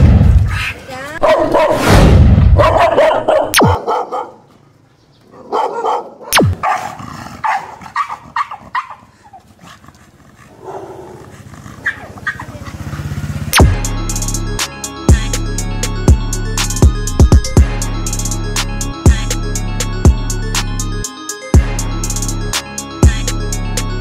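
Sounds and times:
dogs barking: 0:01.2 - 0:01.8, 0:02.6 - 0:04.5, 0:05.3 - 0:13.2.

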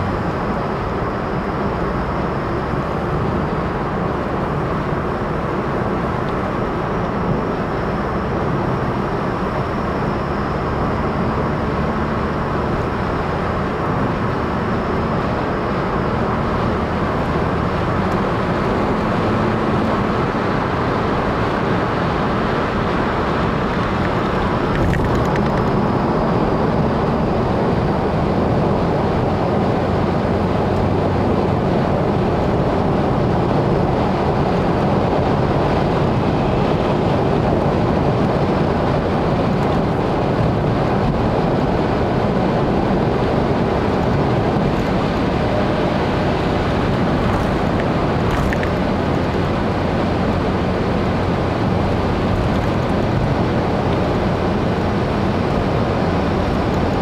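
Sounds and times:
engine drone: 0:00.0 - 0:57.0.

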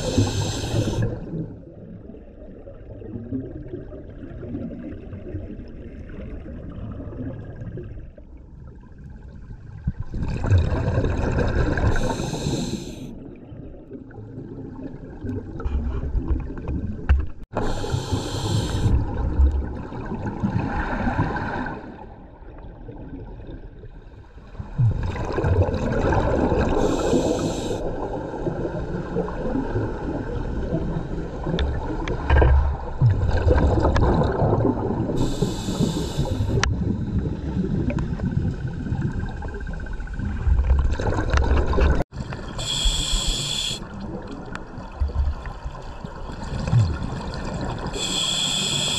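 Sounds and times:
regulator inhalation hiss: 0:00.0 - 0:01.1, 0:11.9 - 0:13.0, 0:17.6 - 0:19.0, 0:26.8 - 0:27.9, 0:35.2 - 0:36.6, 0:42.5 - 0:43.8, 0:48.0 - 0:48.9
exhaled air bubbling: 0:09.8 - 0:21.4, 0:24.6 - 0:48.9.

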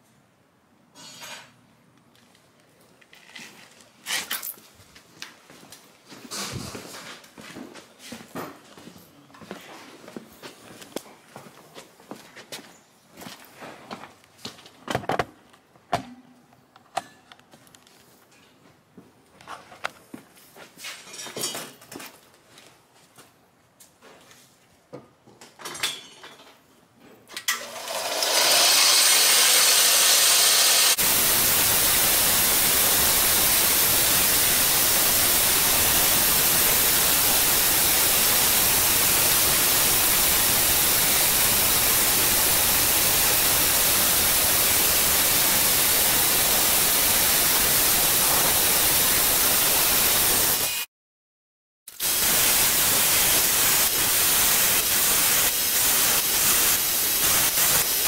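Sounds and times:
belt sander running: 0:27.6 - 0:50.8
belt grinder sanding: 0:27.9 - 0:50.8.

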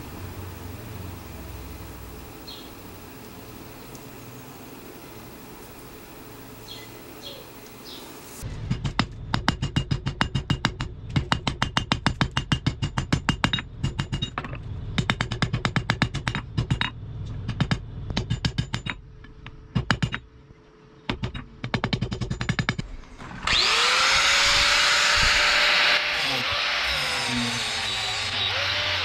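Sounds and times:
rapid metal-on-metal striking: 0:08.5 - 0:19.0
grinder whining: 0:23.1 - 0:29.0.

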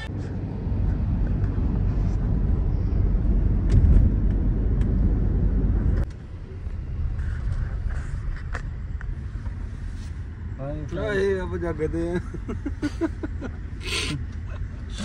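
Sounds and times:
car engine and tyre rumble: 0:00.0 - 0:15.0.

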